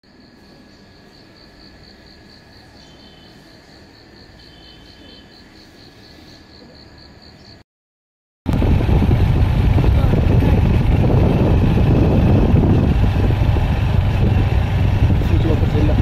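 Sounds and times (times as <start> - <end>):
crickets chirping: 0.0 - 7.6
lower insect trill: 0.1 - 7.6
low steady rumble: 8.5 - 16.0.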